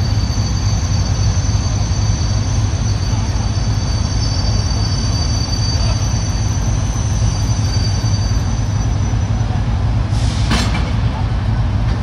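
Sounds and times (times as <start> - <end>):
high wheel squeal: 0.0 - 9.6
diesel locomotive engine drone: 0.0 - 12.0
train coupling clank: 10.2 - 12.0.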